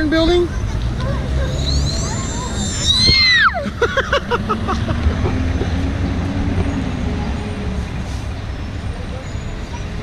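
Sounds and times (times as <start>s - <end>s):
street traffic: 0.0s - 10.0s
high falling squeal: 1.6s - 3.6s.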